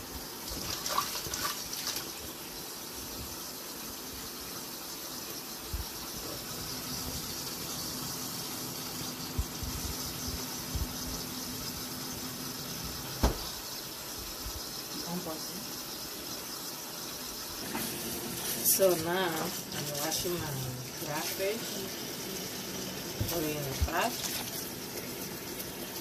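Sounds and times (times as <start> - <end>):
tap running into metal sink: 13.2 - 13.6.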